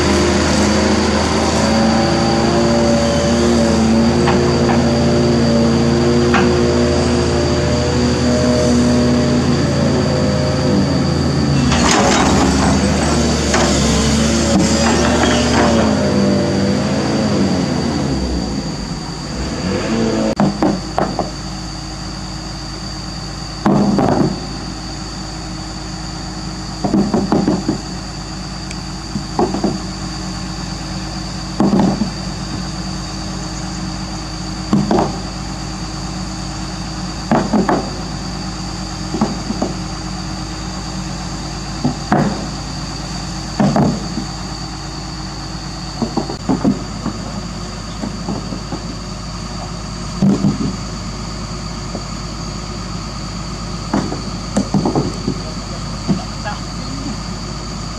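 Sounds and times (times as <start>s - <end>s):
excavator diesel engine running: 0.0s - 57.9s
dull knocks of stones: 20.4s - 21.4s, 23.6s - 24.4s, 26.8s - 27.9s, 29.1s - 29.9s, 31.6s - 32.7s, 34.7s - 35.3s, 37.2s - 38.0s, 39.1s - 39.8s, 41.8s - 42.6s, 43.6s - 44.4s, 46.0s - 47.4s, 48.0s - 49.0s, 49.6s - 50.8s, 53.9s - 56.4s.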